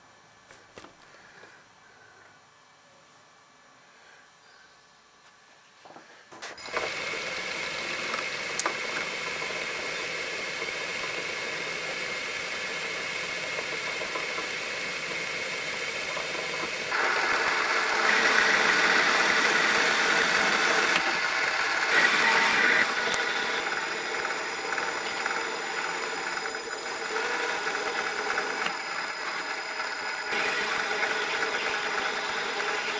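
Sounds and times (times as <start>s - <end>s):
lathe tool cutting steel: 6.6s - 32.9s
metal lathe running: 6.6s - 32.9s.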